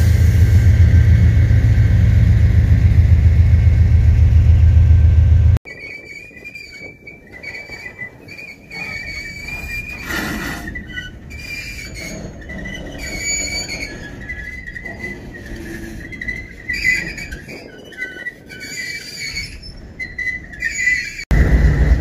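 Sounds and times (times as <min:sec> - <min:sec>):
faint train rumble: 0:00.0 - 0:05.6, 0:08.1 - 0:22.0
loud low rumble: 0:00.0 - 0:05.6, 0:21.3 - 0:22.0
train wheels squealing on rail: 0:05.7 - 0:22.0.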